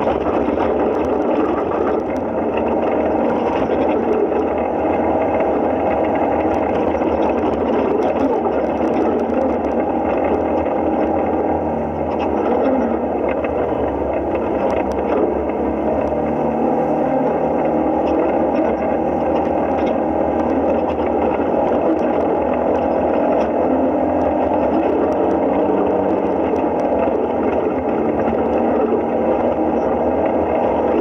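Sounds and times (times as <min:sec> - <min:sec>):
drivetrain drone: 0:00.0 - 0:31.0
faint clicks and rattles: 0:00.0 - 0:31.0
vehicle engine running: 0:00.0 - 0:31.0.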